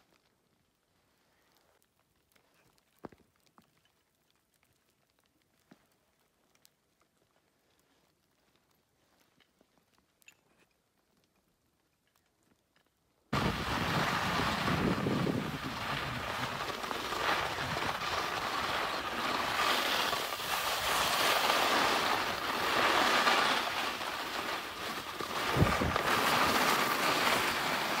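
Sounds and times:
wind buffeting microphone: 13.4s - 18.7s, 25.4s - 26.6s.

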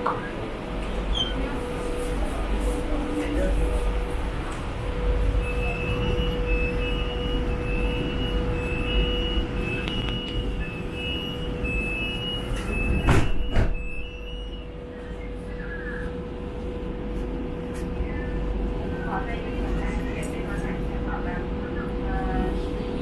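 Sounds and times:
train hum and low rumble: 0.0s - 23.0s
two-tone door warning beeps: 4.9s - 16.2s
sliding doors thudding shut: 12.7s - 14.0s.

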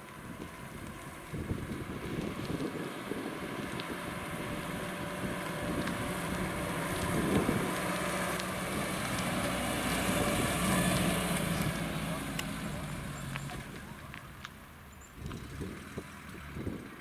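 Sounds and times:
tyres on road: 0.0s - 17.0s
wind on microphone: 0.2s - 11.8s, 15.1s - 17.0s
car engine driving past: 3.0s - 14.6s.

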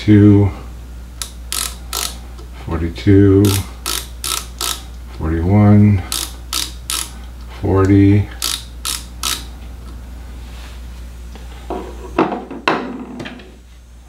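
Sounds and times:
low steady hum: 0.0s - 14.0s
micrometer ratchet clicking: 1.2s - 2.5s, 3.4s - 5.0s, 6.0s - 7.2s, 8.3s - 9.5s.

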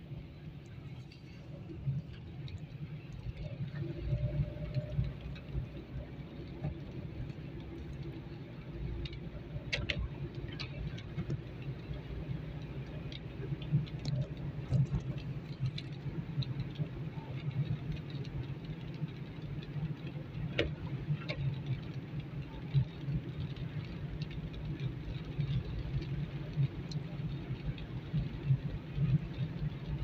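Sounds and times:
car engine and tyres rumbling: 0.0s - 30.0s
raindrops ticking on windscreen: 0.0s - 30.0s.

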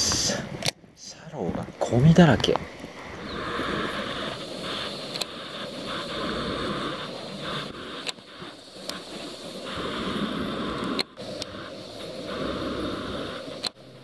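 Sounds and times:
sharp clicks: 2.4s - 13.8s.

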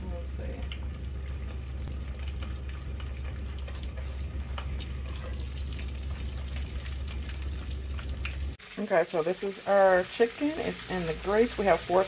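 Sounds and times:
steady low hum: 0.0s - 8.6s
hot oil sizzling and crackling: 0.0s - 12.0s.

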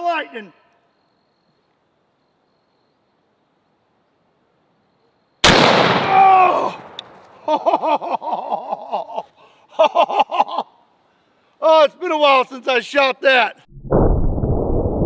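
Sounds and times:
rifle shot: 5.4s - 7.3s
man shouting: 6.0s - 6.8s.

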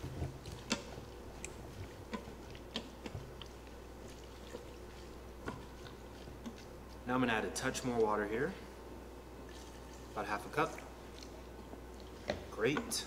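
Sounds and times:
wooden spoon stirring greens: 0.0s - 7.1s.

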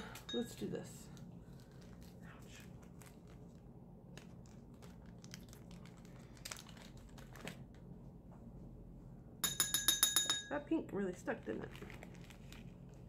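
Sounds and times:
plastic packet crinkling: 1.4s - 7.8s, 11.5s - 13.0s.

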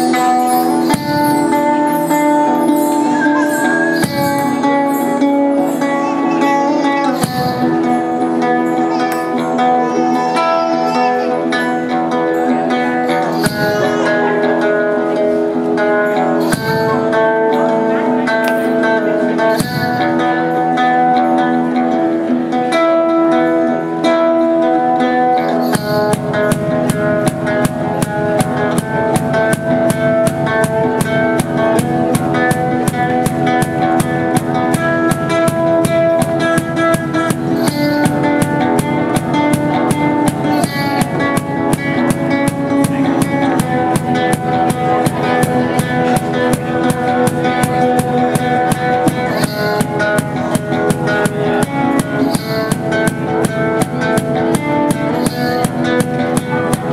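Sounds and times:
fast percussion beat: 0.0s - 9.7s, 13.0s - 14.4s, 16.2s - 17.4s, 19.4s - 20.4s, 25.4s - 56.9s
high ringing notes: 0.0s - 15.1s, 16.0s - 20.8s, 25.2s - 56.9s
acoustic guitar playing: 0.0s - 56.9s.

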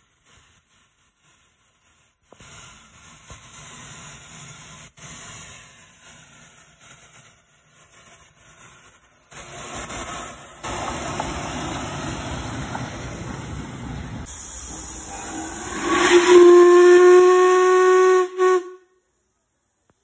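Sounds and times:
steam hissing: 0.0s - 18.8s
steam whistle: 14.3s - 19.0s.

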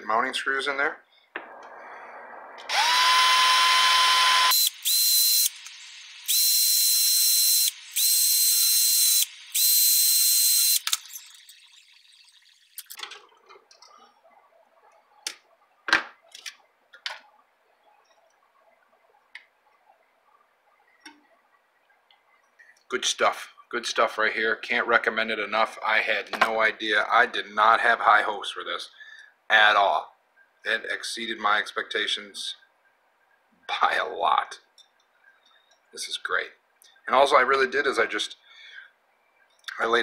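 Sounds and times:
cordless drill whining: 2.7s - 11.5s.

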